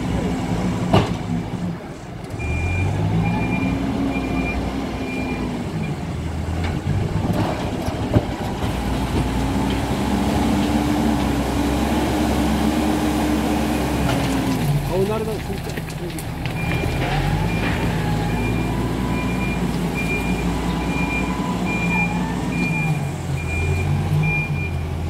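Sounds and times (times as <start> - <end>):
diesel engine revving: 0.0 - 25.0
reversing alarm beeps: 2.4 - 5.4, 16.6 - 24.8.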